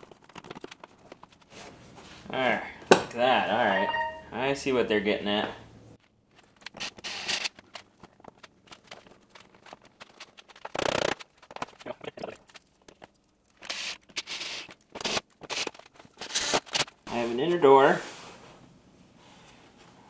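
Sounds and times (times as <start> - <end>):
rasping tearing bursts: 10.5 - 11.3.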